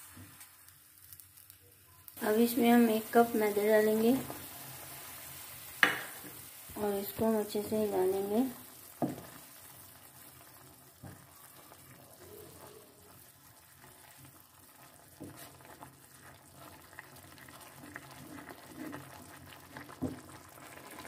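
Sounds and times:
wet bubbling in a pan: 0.0s - 21.0s
spoon knocking against pan: 5.8s - 6.2s.

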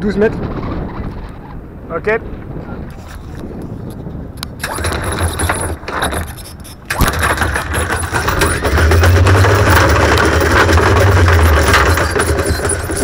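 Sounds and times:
windlass motor humming: 0.0s - 13.0s
anchor chain rattling: 4.5s - 13.0s.

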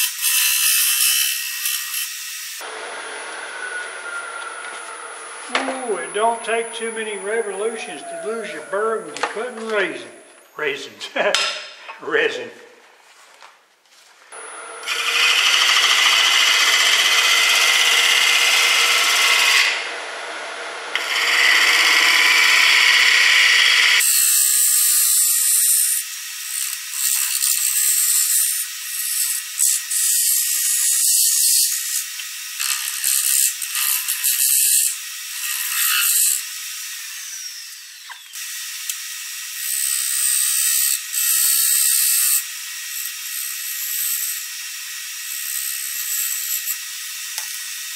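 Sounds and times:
lathe tool scraping wood: 14.4s - 25.8s, 26.5s - 38.4s.

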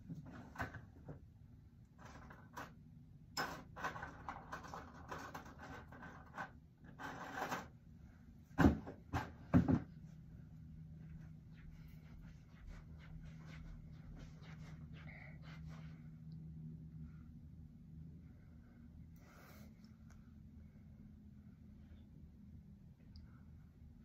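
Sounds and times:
rustling and clattering: 0.0s - 1.3s, 1.9s - 7.8s.

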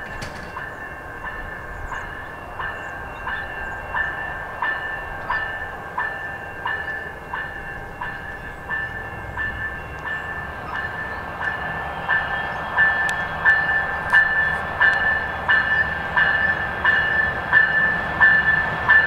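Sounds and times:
train rumbling: 0.0s - 19.0s
bell ringing steadily: 0.5s - 19.0s.

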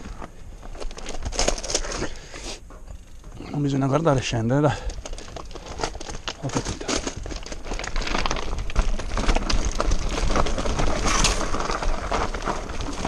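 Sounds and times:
bike rattling over loose rock: 0.0s - 13.0s
bike and rider falling on stones: 4.2s - 13.0s.

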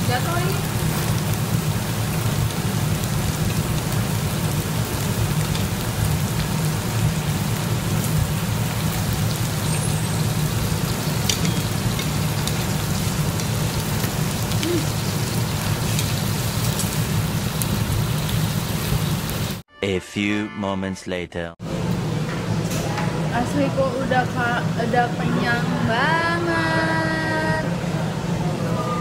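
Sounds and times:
meat and onion sizzling: 0.0s - 19.6s.

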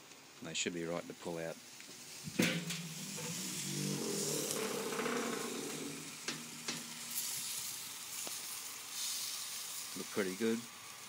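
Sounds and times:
chickens sizzling over charcoal: 0.4s - 11.0s
metal lid clunks: 2.3s - 7.1s
metal barbecue lid opening: 2.3s - 7.3s.

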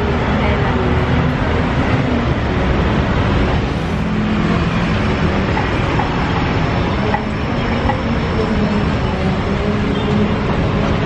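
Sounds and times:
busy outdoor market din: 0.0s - 11.0s.

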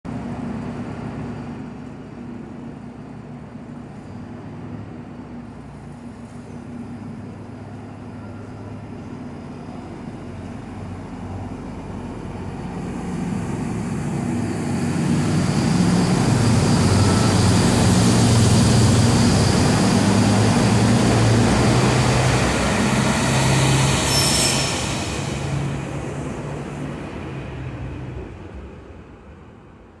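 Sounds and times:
diesel train engine passing: 0.1s - 30.0s
brief high squeal: 23.6s - 25.6s.

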